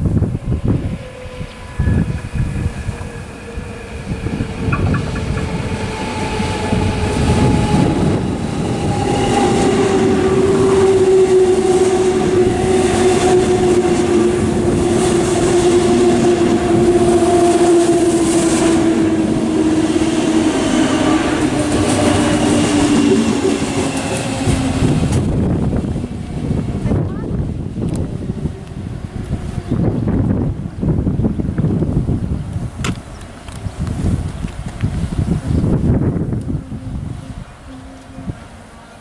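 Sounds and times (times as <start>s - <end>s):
electric train motor whine: 0.0s - 26.8s, 34.9s - 39.0s
train wheels rumbling on rails: 0.0s - 38.4s.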